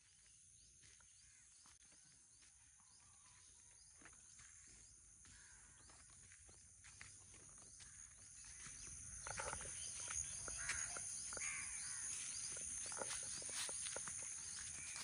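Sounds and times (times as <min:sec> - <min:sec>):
flip-flop footsteps on dirt: 0:00.0 - 0:15.0
bird calls: 0:07.6 - 0:15.0
high-pitched insect drone: 0:08.1 - 0:15.0.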